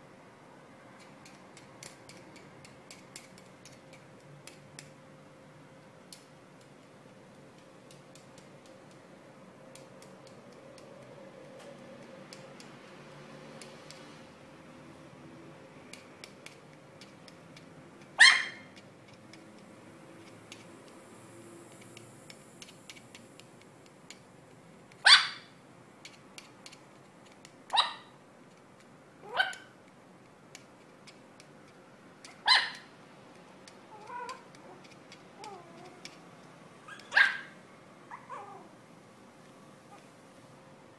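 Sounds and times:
puppy yapping: 18.2 - 18.7, 25.0 - 25.6, 27.7 - 28.2, 29.2 - 29.8, 32.2 - 32.9, 33.9 - 34.8, 36.8 - 38.7
puppy whining: 33.9 - 36.2, 36.8 - 38.8.

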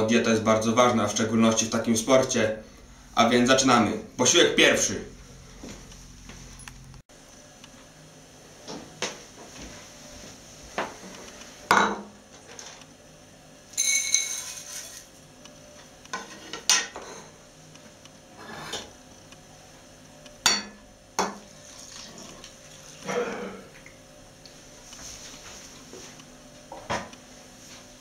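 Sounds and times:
dishes knocking and clinking: 11.7 - 12.1
metal bowl ringing: 13.8 - 14.6, 20.4 - 20.8
liquid pouring into bowl: 21.5 - 23.1.

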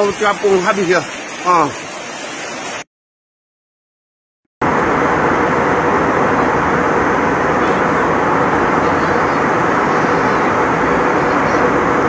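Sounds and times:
floodwater rushing: 0.0 - 2.9, 4.6 - 12.0
airplane cabin noise: 4.6 - 12.0.

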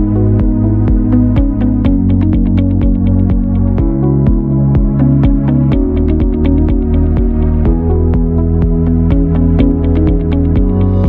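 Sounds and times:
electronic background music: 0.0 - 11.0.

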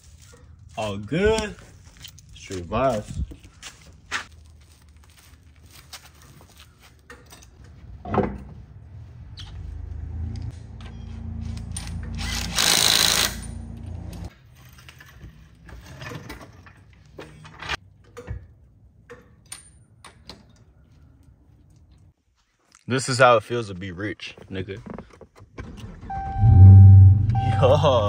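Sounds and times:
metal tools clicking and clanking: 7.1 - 7.6.

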